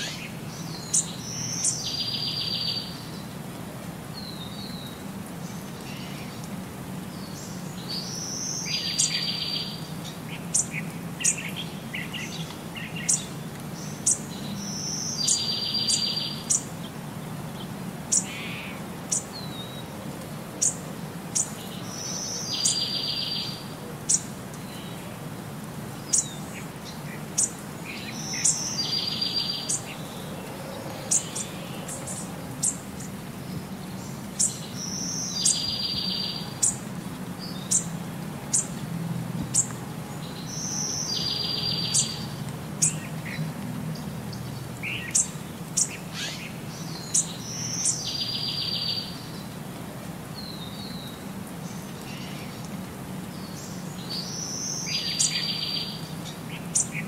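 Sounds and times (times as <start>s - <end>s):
birds chirping: 4.1s - 25.3s, 25.9s - 49.7s.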